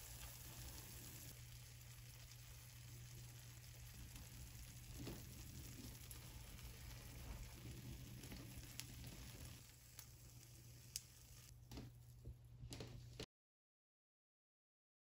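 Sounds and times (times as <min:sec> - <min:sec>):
rice cakes sizzling in oil: 0:00.0 - 0:12.3.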